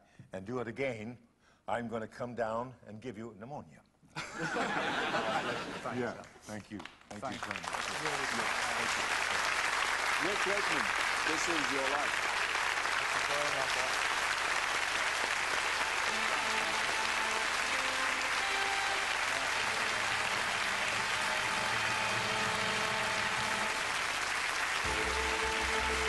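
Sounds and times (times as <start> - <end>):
studio audience applauding: 4.6 - 26.0
music with bass: 24.9 - 26.0.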